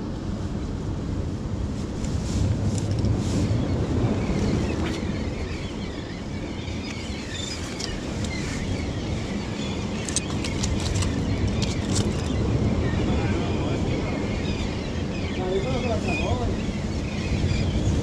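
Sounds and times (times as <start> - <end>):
sea surf: 0.0 - 18.0
wind rumbling on microphone: 0.0 - 18.0
small clicks and knocks: 10.0 - 12.3.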